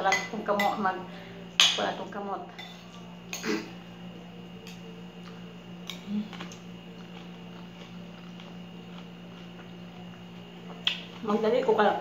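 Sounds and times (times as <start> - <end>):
steady low hum: 0.0 - 12.0
chewing: 5.2 - 11.2.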